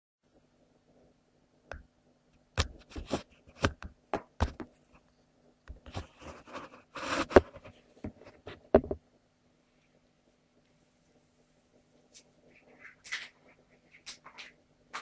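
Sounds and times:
parrot crunching cereal: 12.7s - 15.0s.

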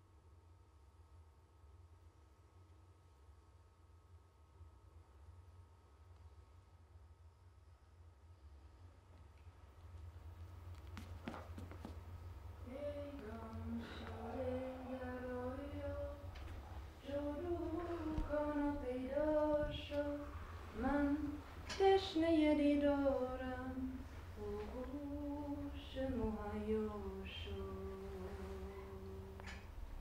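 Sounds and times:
low steady hum: 0.0s - 30.0s
woman singing: 12.6s - 29.7s.

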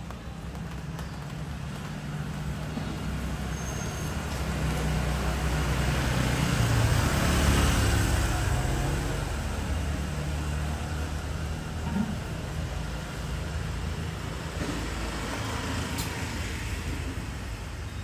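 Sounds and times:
street traffic noise: 0.0s - 18.0s
motor scooter passing by: 2.2s - 12.4s.

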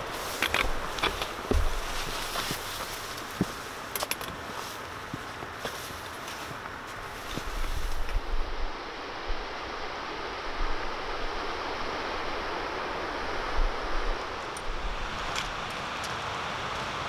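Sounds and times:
wind thumps on microphone: 0.0s - 3.5s, 7.2s - 15.6s
mountain stream rushing: 0.0s - 17.0s.

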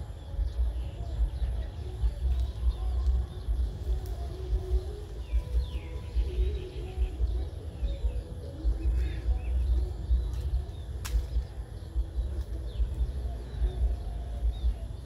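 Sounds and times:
faint bird chirps: 0.0s - 15.0s
low rumble: 0.0s - 15.0s
sharp click: 11.0s - 11.5s.

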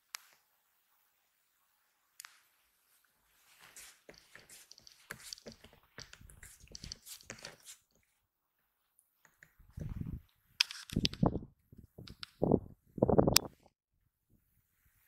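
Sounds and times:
handling rustling and clicks: 3.8s - 8.0s, 10.6s - 12.4s
wind buffeting microphone: 9.7s - 10.2s, 11.0s - 13.4s.

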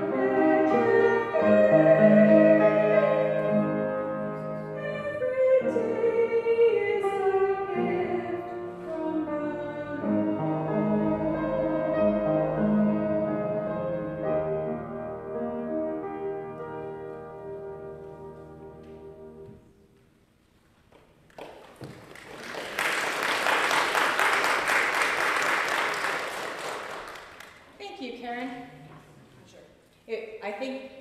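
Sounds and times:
held accompaniment chords: 0.0s - 20.4s
congregation applauding: 21.3s - 27.8s.

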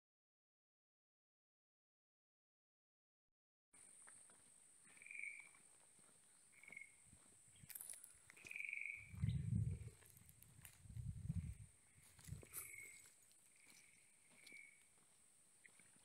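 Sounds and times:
low rumbling thumps: 9.1s - 10.0s.

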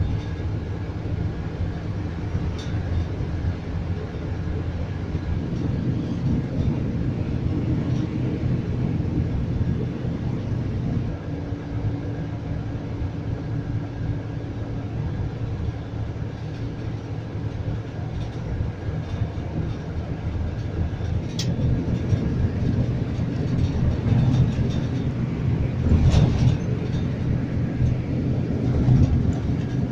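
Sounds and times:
bus engine drone: 0.0s - 29.9s
tyre and road rumble: 0.0s - 29.9s
sharp rattles: 16.3s - 29.9s.

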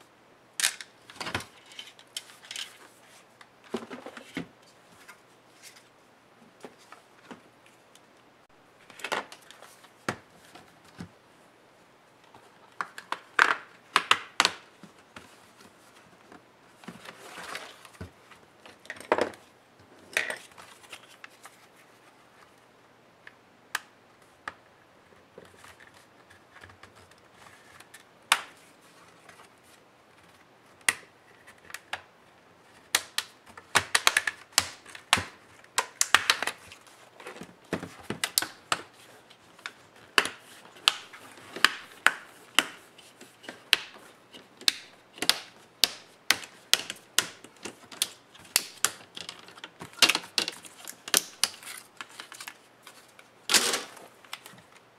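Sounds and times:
plastic clips clicking and snapping: 32.9s - 36.6s, 43.4s - 52.6s.

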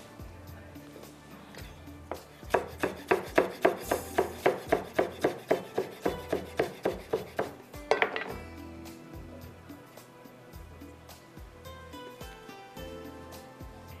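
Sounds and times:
knife chopping on cutting board: 2.1s - 8.4s.

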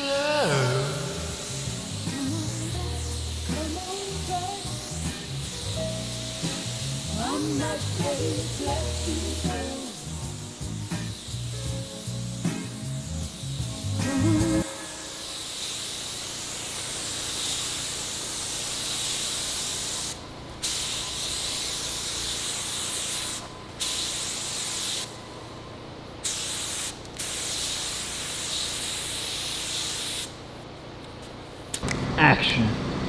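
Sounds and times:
spray gun hissing: 0.0s - 25.2s, 26.2s - 30.5s.

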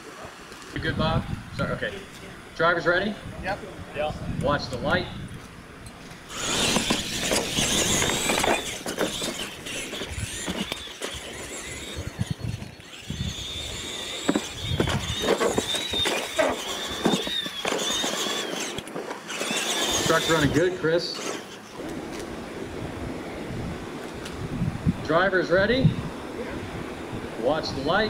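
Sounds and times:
toy truck motors whining: 5.8s - 22.7s.

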